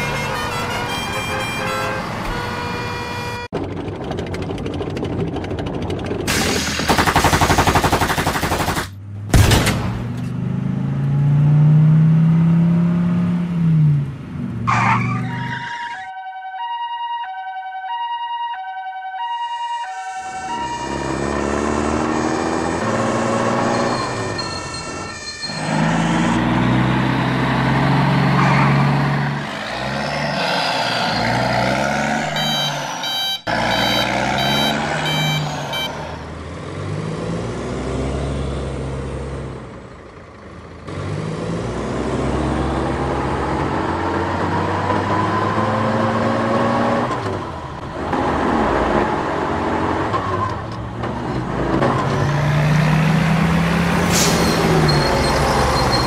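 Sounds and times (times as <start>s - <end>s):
truck and car engines speeding up: 0.0s - 16.0s, 20.2s - 56.0s
reversing beeper: 15.2s - 26.9s, 30.4s - 36.3s, 53.8s - 56.0s.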